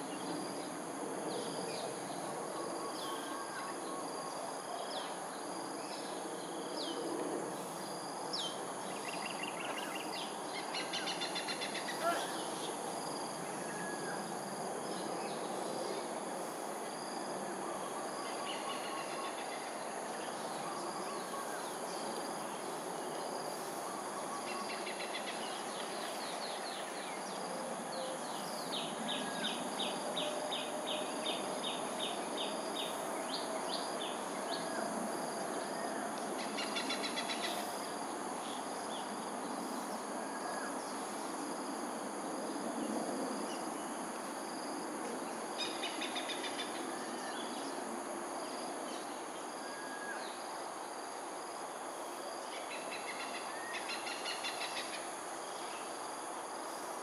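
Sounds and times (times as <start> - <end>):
insects calling: 0.0 - 57.0.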